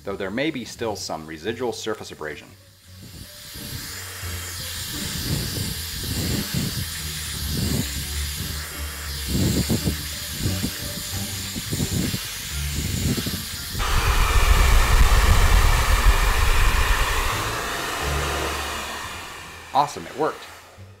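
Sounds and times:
hair dryer blowing: 11.6s - 21.0s.

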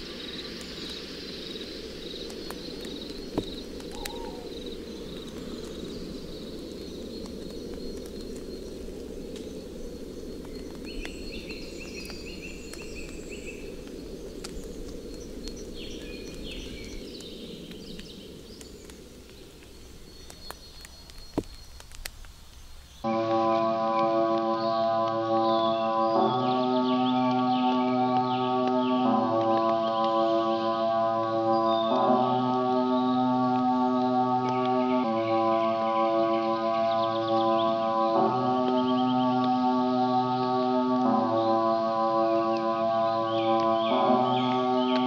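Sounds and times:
bird chirps: 0.0s - 23.1s, 24.4s - 45.0s
steady low outdoor noise: 0.0s - 45.0s
faint clicks: 2.0s - 23.0s
synth chord: 23.1s - 36.9s, 37.6s - 45.0s.

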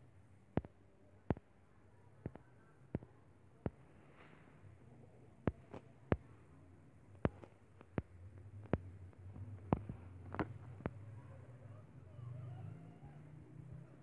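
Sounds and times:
fingertip tapping touchscreen: 2.2s - 3.9s, 5.5s - 6.3s, 7.2s - 8.9s.

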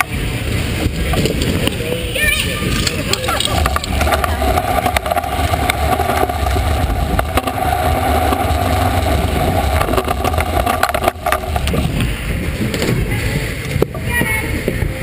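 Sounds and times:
scooter wheels rolling on concrete: 0.0s - 15.0s
sharp clicks and knocks: 2.8s - 12.1s.

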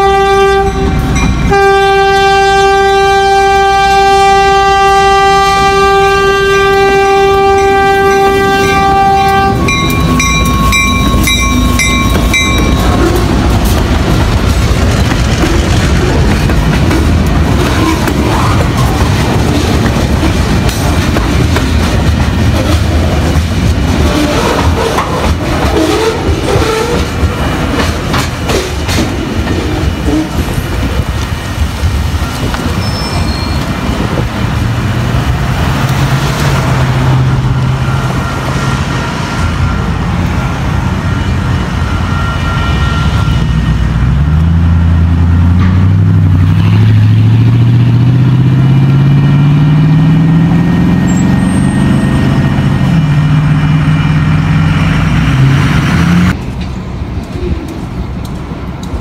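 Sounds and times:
vehicle engine accelerating: 44.1s - 56.4s.

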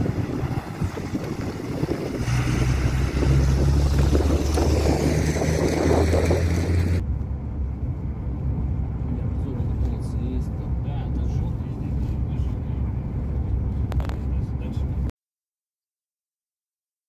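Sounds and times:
wind buffeting microphone: 0.0s - 7.0s.

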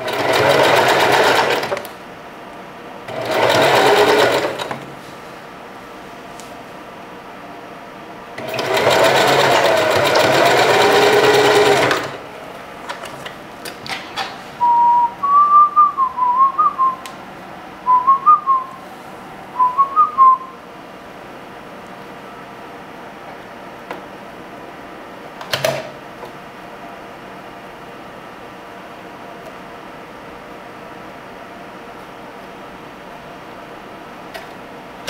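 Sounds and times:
sewing machine running fast: 0.0s - 1.9s, 3.1s - 4.8s, 8.4s - 12.2s
person whistling a tune: 14.6s - 17.1s, 17.8s - 18.8s, 19.6s - 20.6s.

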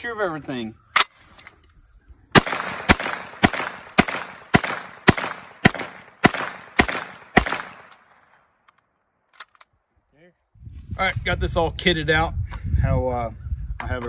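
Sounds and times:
pistol shots with echo: 2.3s - 8.4s.

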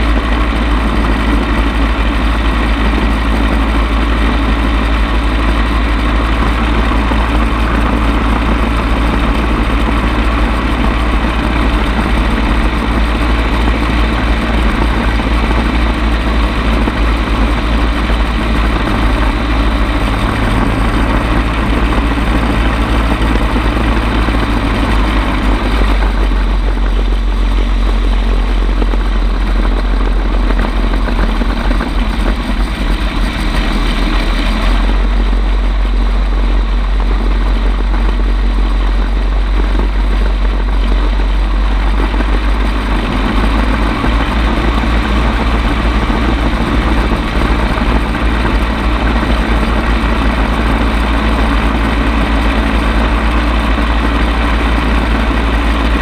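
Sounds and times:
gyrocopter engine and propeller: 0.0s - 56.0s
loud wind rush: 0.0s - 56.0s.

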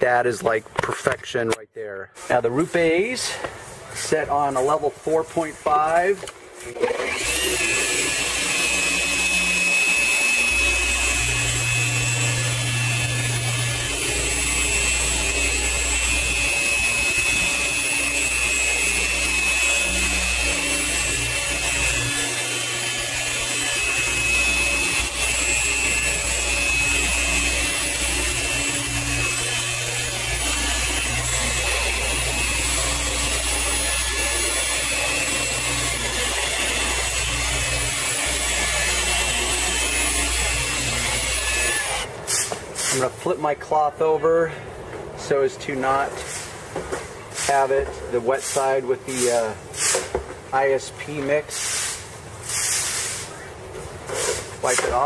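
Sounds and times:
electric polisher whining: 6.6s - 42.1s.

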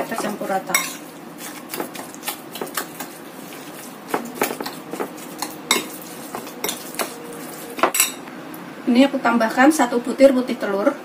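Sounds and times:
spoon scraping a ceramic bowl: 3.0s - 7.2s.

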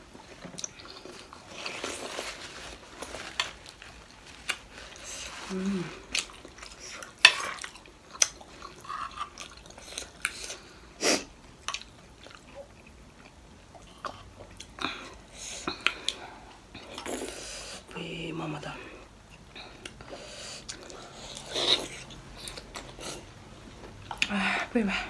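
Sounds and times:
wet chewing and smacking: 6.0s - 10.7s, 11.6s - 15.0s.

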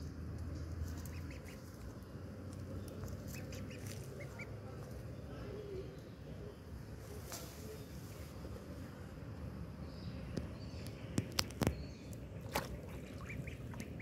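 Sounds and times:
duckling peeping: 1.0s - 1.9s, 3.1s - 4.6s, 13.0s - 14.0s.

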